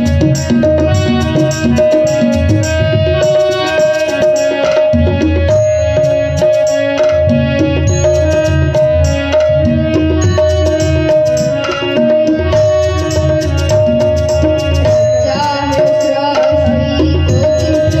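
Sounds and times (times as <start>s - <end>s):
keyboard melody: 0.0s - 18.0s
tabla rhythm: 0.0s - 18.0s
young man singing: 11.0s - 18.0s.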